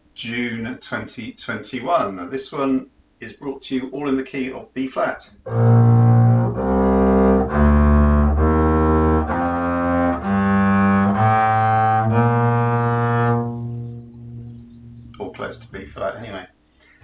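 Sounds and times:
bowed double bass notes: 0:05.4 - 0:16.5.

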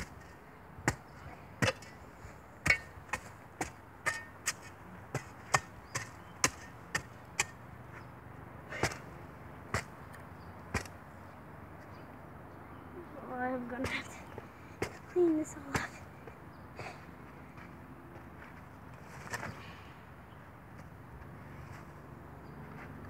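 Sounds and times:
shovel stabbing into hard dirt: 0:02.6 - 0:07.6, 0:08.7 - 0:09.1.

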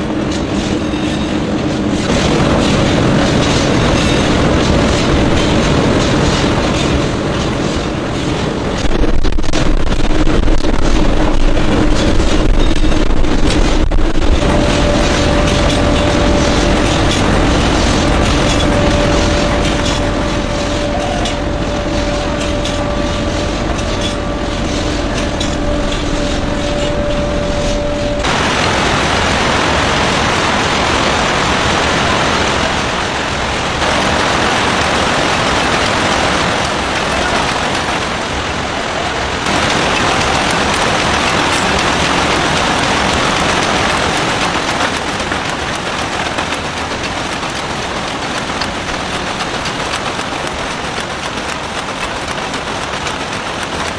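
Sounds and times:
loud machine noise: 0:00.0 - 0:53.9
tonal machine hum: 0:08.7 - 0:31.2.

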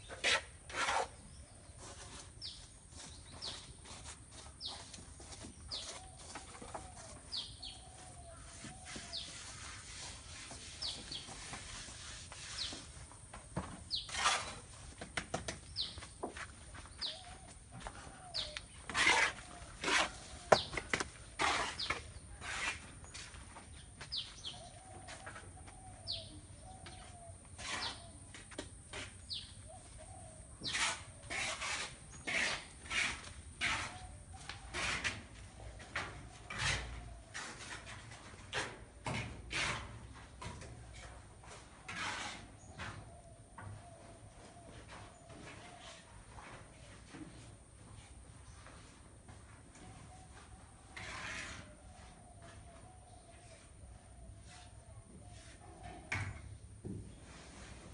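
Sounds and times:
bird chirping: 0:05.6 - 0:09.5, 0:16.8 - 0:18.9, 0:23.1 - 0:28.2, 0:29.2 - 0:31.0
fainter lower bird calls: 0:05.6 - 0:11.5, 0:15.7 - 0:38.1, 0:49.7 - 0:56.6.

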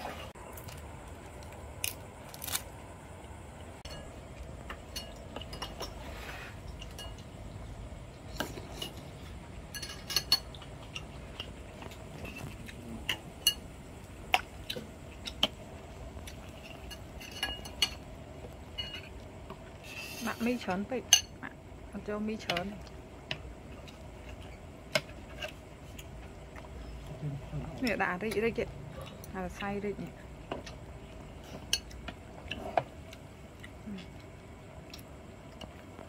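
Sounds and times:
low steady hum: 0:00.0 - 0:36.0.

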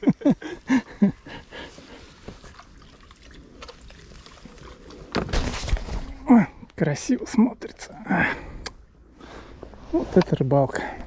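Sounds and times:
water dripping and lapping: 0:00.4 - 0:06.6
paddle dipping into water: 0:01.4 - 0:06.2.

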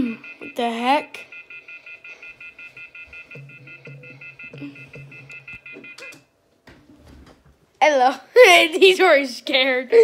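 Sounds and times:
fast electronic beeping: 0:00.2 - 0:06.2.

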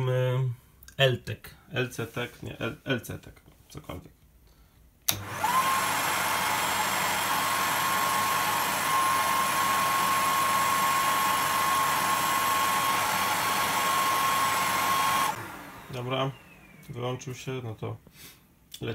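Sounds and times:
power switch click: 0:05.1 - 0:05.4
hair dryer running: 0:05.1 - 0:17.0.

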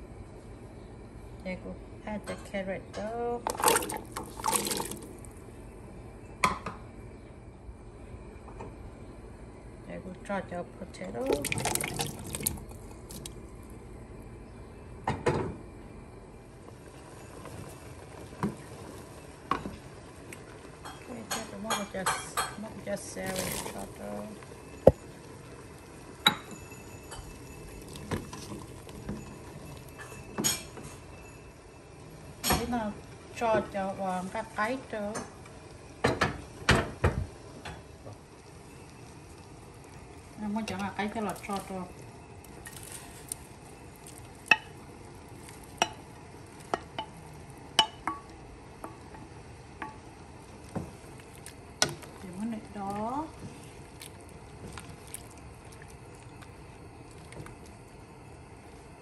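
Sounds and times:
glass bowl clinking on metal pot: 0:26.2 - 0:31.4, 0:47.8 - 0:48.3.

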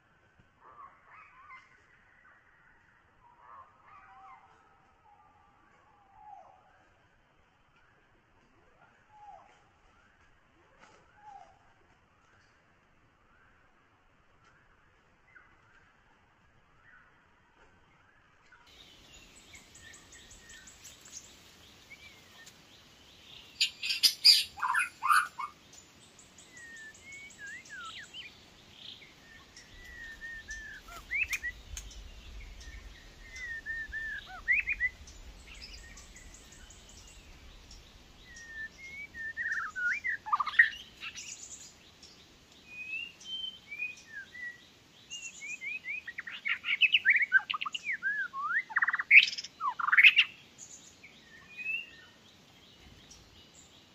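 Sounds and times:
bird whistling calls: 0:23.6 - 0:25.5, 0:26.5 - 0:28.3, 0:29.3 - 0:31.6, 0:33.3 - 0:36.3, 0:38.3 - 0:41.3.

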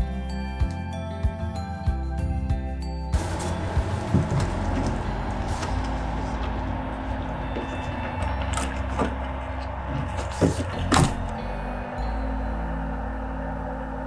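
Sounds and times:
steady low hum: 0:03.1 - 0:14.0.

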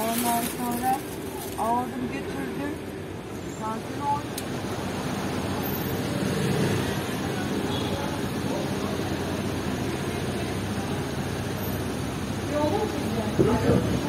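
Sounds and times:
people talking: 0:00.0 - 0:02.8, 0:03.5 - 0:04.4, 0:07.2 - 0:14.0
traffic hum: 0:00.0 - 0:14.0.

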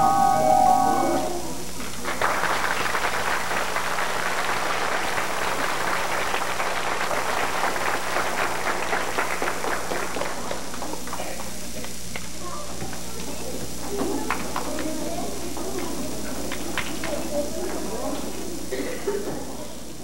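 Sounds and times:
music: 0:00.0 - 0:01.8
audience applauding: 0:01.2 - 0:12.0, 0:13.9 - 0:19.8.

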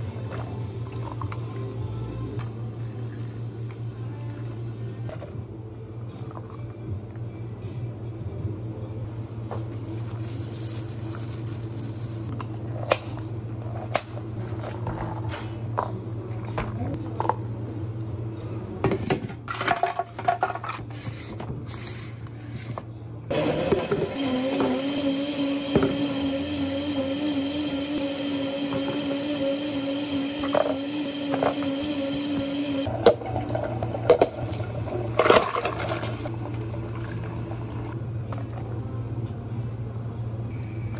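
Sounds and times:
low hum of cafe equipment: 0:00.0 - 0:24.1, 0:32.8 - 0:40.9.

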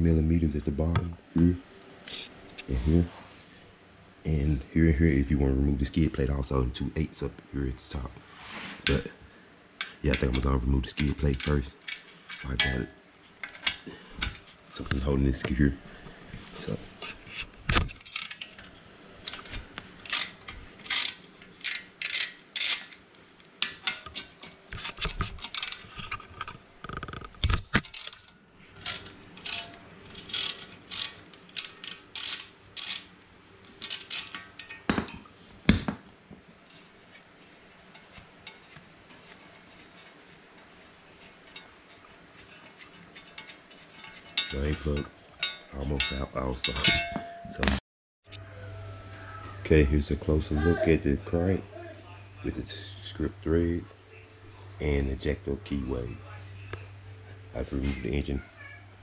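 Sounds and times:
metal clinks: 0:45.4 - 0:47.8.

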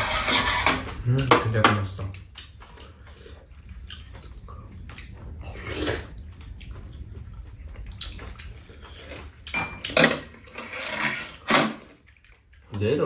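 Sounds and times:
steady low hum: 0:00.0 - 0:13.0
chewing and mouth noises: 0:02.0 - 0:10.0, 0:12.0 - 0:12.8.

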